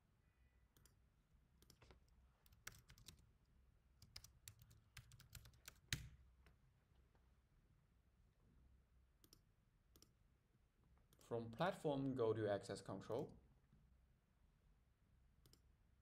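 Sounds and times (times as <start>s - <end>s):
computer keyboard typing: 1.6s - 3.2s, 4.0s - 6.2s.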